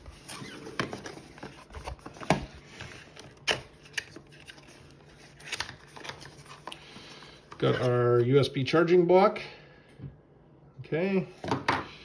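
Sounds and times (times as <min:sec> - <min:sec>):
cardboard packaging handled: 0:00.0 - 0:06.8.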